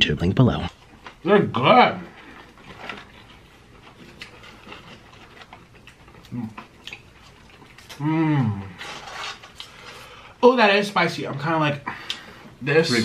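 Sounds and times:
chewing and mouth smacks: 2.4s - 8.0s
person humming mmm: 7.9s - 8.9s.

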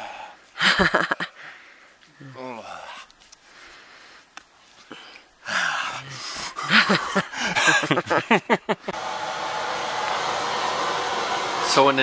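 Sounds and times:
man shouting and gasping: 5.4s - 7.5s
fan-like whir: 8.9s - 12.0s.

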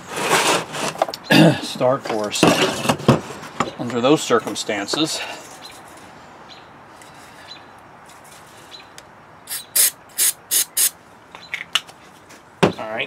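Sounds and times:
aerosol can spraying: 9.5s - 10.9s.

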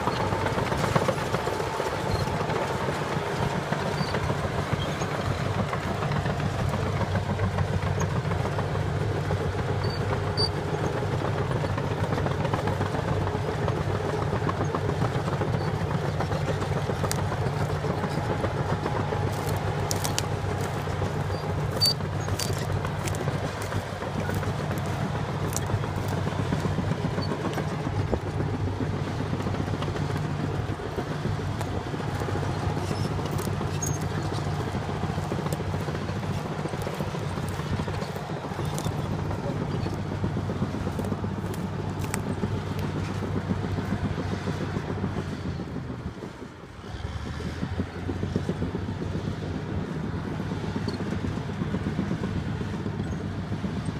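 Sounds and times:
heavy diesel engines under load: 0.0s - 53.9s.

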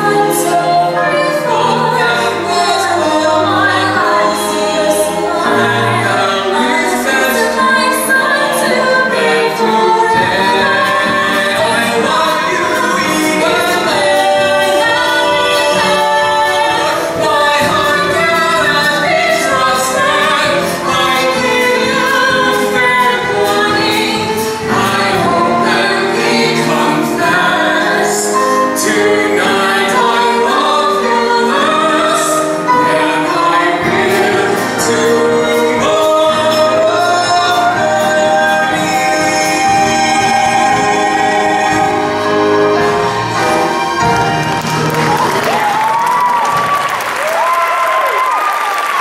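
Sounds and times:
woman and man singing duet: 0.0s - 43.1s
musical accompaniment: 0.0s - 49.0s.

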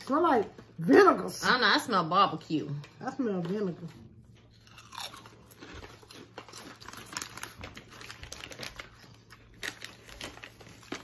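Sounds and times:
chip bag crinkling: 4.6s - 11.0s.

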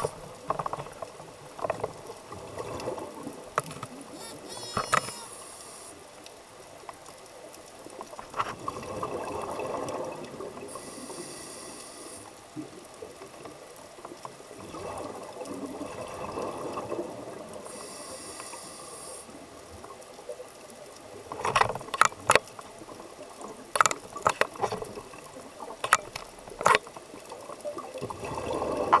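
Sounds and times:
exhaled bubbles underwater: 2.2s - 4.3s, 8.6s - 11.0s, 12.5s - 17.8s, 22.6s - 29.0s
regulator hiss: 4.2s - 6.0s, 10.7s - 12.3s, 17.7s - 19.3s.

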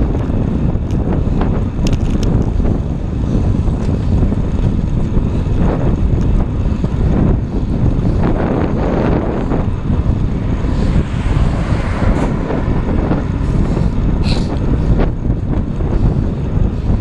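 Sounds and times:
wind buffeting microphone: 0.0s - 17.0s
car passing close: 8.8s - 14.9s.

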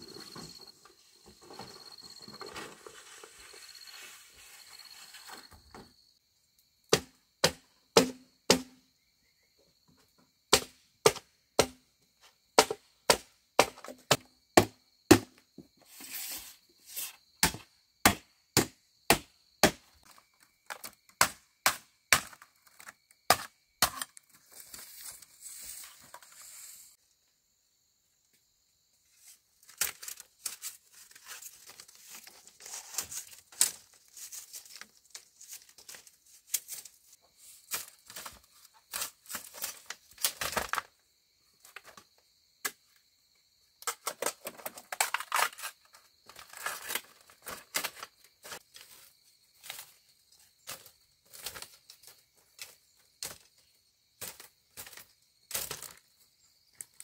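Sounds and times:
sharp chopping strikes: 6.9s - 8.8s, 10.5s - 11.8s, 12.6s - 15.3s, 17.4s - 19.8s.

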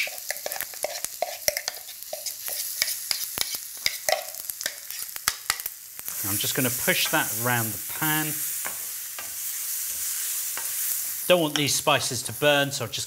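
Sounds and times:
mustard seeds popping in oil: 0.0s - 6.2s
oil sizzling in a pan: 0.0s - 13.0s.

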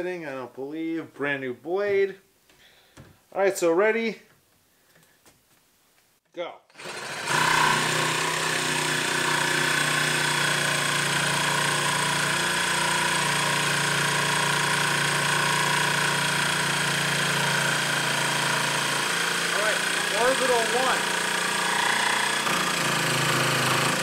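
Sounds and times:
jigsaw sawing through wood: 6.7s - 24.0s.

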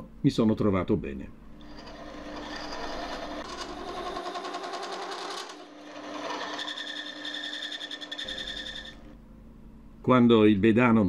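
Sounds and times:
wood lathe running: 1.6s - 9.2s.

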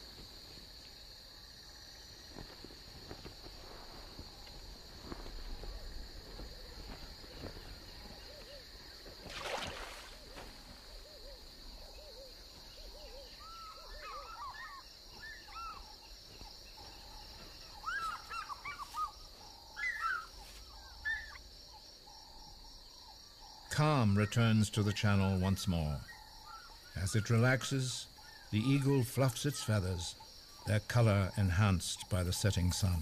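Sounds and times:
fish eagles yelping: 11.0s - 15.9s, 17.8s - 21.4s.

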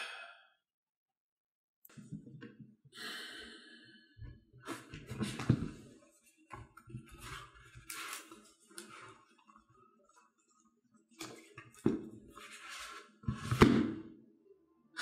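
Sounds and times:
objects rustling and scraping: 4.6s - 10.4s, 11.2s - 14.0s.

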